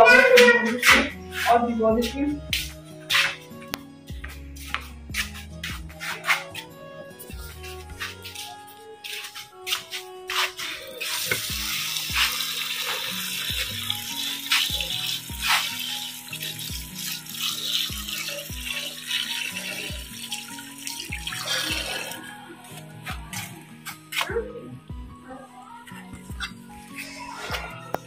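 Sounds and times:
music with steady beat: 0.0 - 28.0
tap water splashing into bowl: 11.3 - 13.7.

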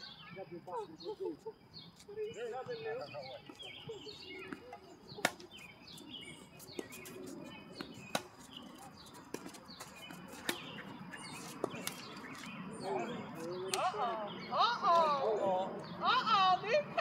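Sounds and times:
birds chirping: 0.0 - 17.0
tennis balls struck by racquets: 4.5 - 5.7, 6.6 - 12.6.

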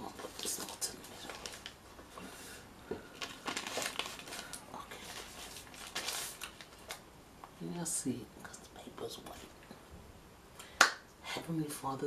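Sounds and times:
paper crinkling and rustling: 0.1 - 2.1, 3.0 - 7.0.

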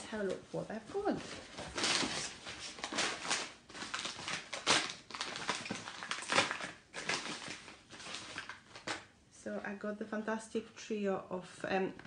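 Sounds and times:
packaging rustling and crinkling: 0.2 - 9.1.

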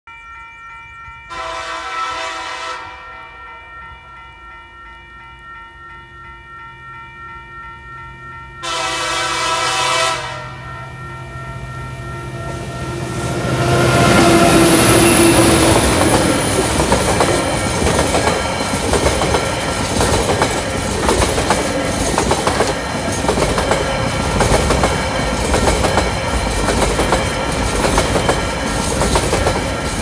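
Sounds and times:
locomotive horn blasts: 1.3 - 3.3, 8.6 - 10.7
wheels rumbling on rail: 8.3 - 30.0.

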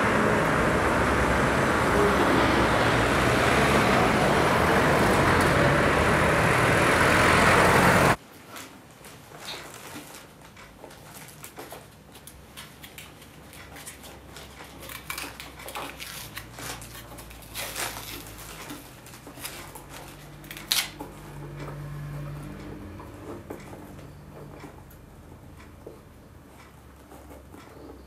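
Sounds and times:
cardboard rustling: 8.3 - 21.3
scissors cutting cardboard: 12.3 - 21.7.

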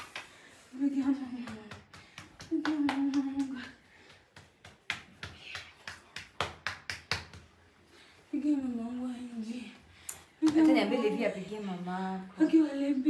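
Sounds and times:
slaps and knocks against sofa: 1.1 - 7.6.

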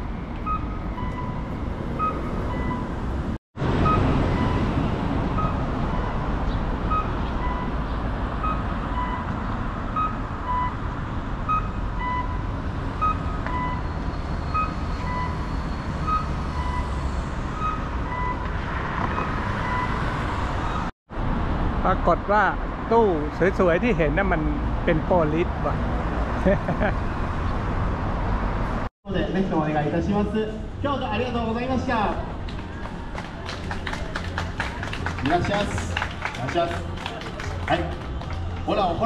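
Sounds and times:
traffic noise: 0.0 - 39.0
crossing signal electronic tones: 0.4 - 3.0, 3.8 - 7.8, 8.4 - 10.8, 11.5 - 15.4, 17.6 - 18.6.

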